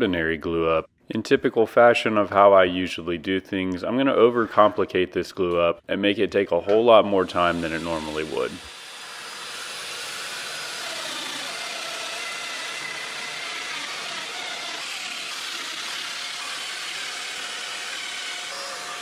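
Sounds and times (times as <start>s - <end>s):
joiner motor whir: 7.3s - 19.0s.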